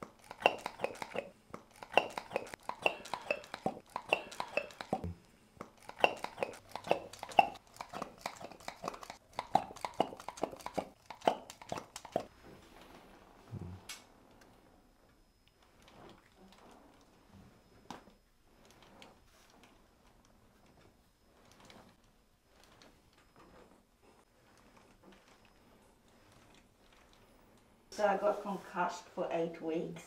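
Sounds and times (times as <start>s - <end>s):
plastic pump clicking and squeaking: 0.1s - 5.0s, 5.6s - 12.3s.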